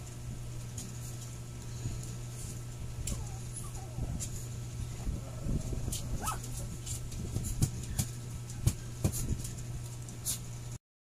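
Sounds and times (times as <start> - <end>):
steady low hum: 0.0 - 10.8
dog whining: 3.0 - 6.9.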